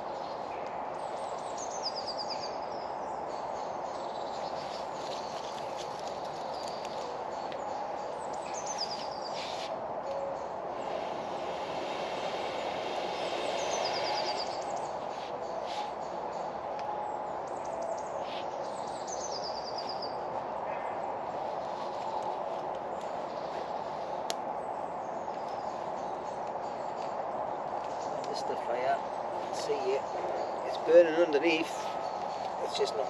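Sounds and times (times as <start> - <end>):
songbird trilling: 12.4 - 15.9.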